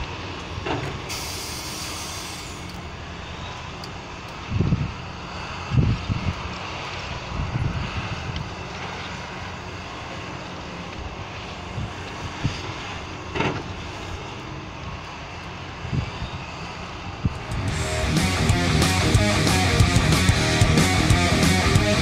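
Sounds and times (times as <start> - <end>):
excavator diesel engine working: 0.0 - 22.0
sand unloading into truck: 0.6 - 2.7.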